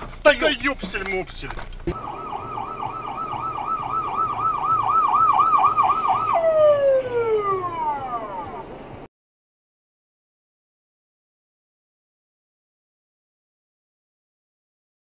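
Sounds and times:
ambulance siren warbling: 1.9s - 9.1s.

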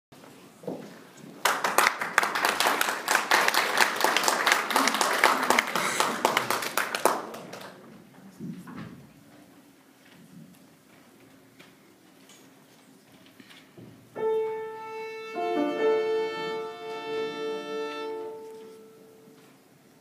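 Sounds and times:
small audience clapping: 1.3s - 8.2s.

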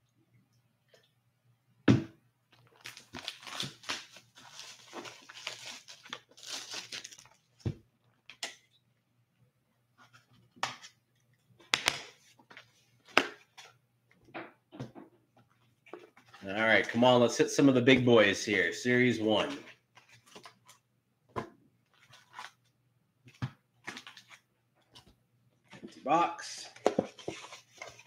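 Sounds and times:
plastic wrap tearing and crinkling: 2.6s - 7.4s.

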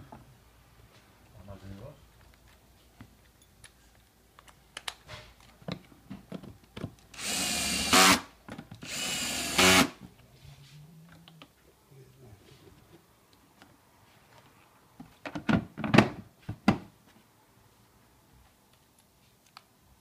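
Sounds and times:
clicks and knocks of handling parts: 2.1s - 7.1s
power screwdriver driving screws: 7.2s - 10.0s.

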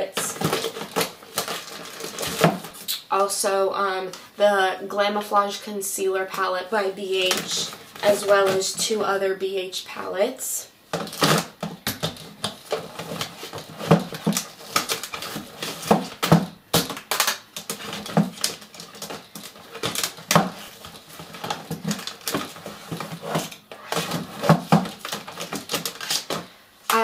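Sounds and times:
makeup palettes clattering: 0.0s - 2.8s, 7.2s - 9.0s, 11.0s - 27.0s.

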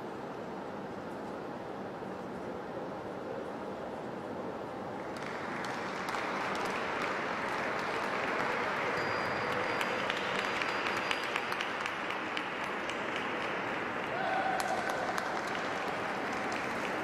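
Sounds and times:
audience applause: 5.0s - 17.0s.

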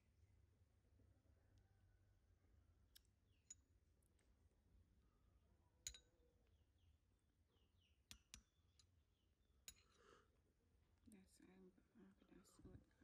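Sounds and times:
spoon clinking ceramic bowl: 5.8s - 6.1s.

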